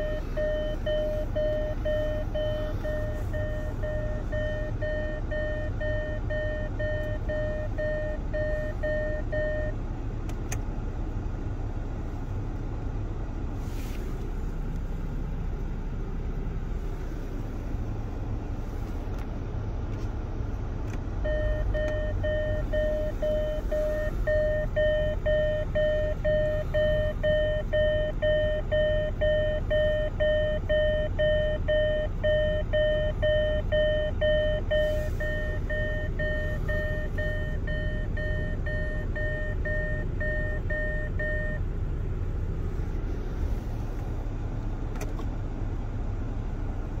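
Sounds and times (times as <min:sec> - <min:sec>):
low hum of running vehicle: 0:00.0 - 0:47.0
click: 0:10.3 - 0:10.6
warning beeper beeping: 0:21.3 - 0:41.6.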